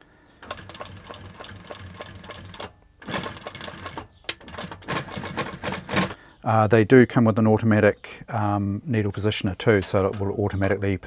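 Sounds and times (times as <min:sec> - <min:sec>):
sewing machine stitching: 0:00.4 - 0:06.2.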